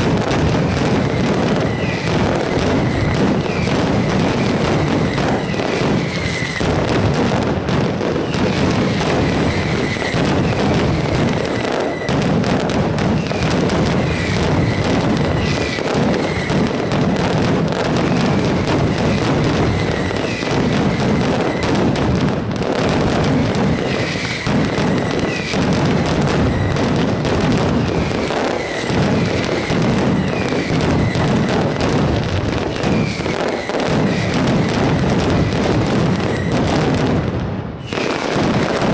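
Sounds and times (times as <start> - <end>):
firecrackers banging: 0.0 - 38.9.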